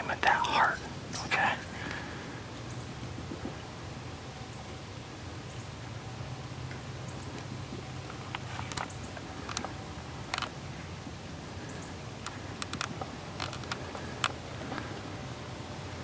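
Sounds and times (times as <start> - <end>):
steady low hum: 0.0 - 16.0
small sharp clicks: 8.1 - 10.6, 12.2 - 14.9.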